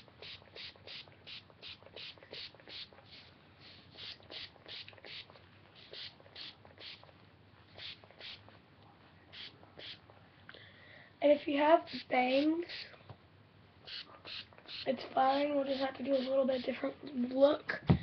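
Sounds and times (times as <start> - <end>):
spray bottle hisses: 0.0 - 7.1, 7.8 - 8.4, 9.3 - 10.0, 13.9 - 16.4.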